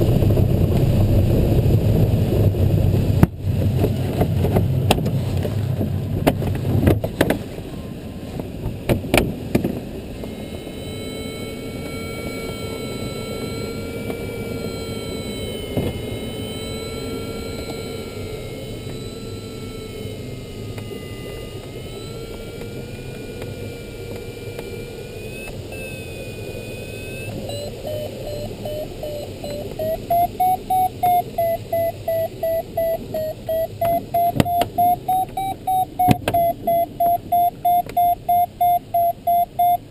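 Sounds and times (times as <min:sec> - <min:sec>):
variometer tone and beeps: 0:10.1 - 0:39.9.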